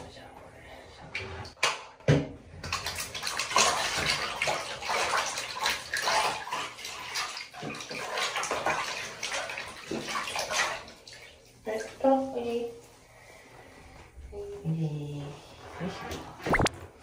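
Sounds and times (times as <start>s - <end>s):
water sloshing in plastic basin: 2.2s - 12.4s.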